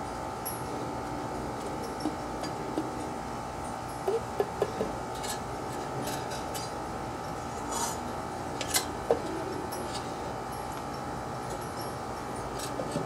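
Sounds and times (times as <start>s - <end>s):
faint steady hum: 0.0s - 13.0s
short metal scrapes: 7.5s - 8.0s.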